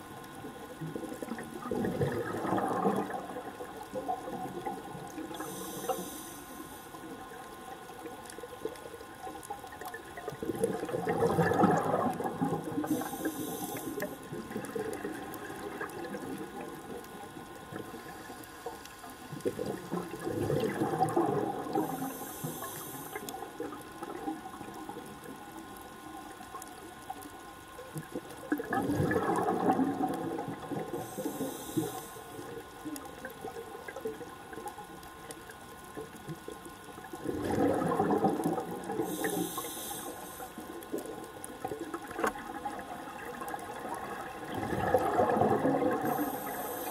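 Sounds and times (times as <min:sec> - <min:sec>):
bubbling underwater exhalation: 0:00.9 - 0:03.5, 0:10.4 - 0:13.1, 0:19.4 - 0:22.0, 0:28.6 - 0:31.2, 0:37.2 - 0:39.2, 0:42.4 - 0:46.5
regulator inhalation hiss: 0:05.3 - 0:07.0, 0:12.9 - 0:14.2, 0:21.8 - 0:23.3, 0:31.0 - 0:32.4, 0:39.0 - 0:40.7, 0:46.0 - 0:46.9.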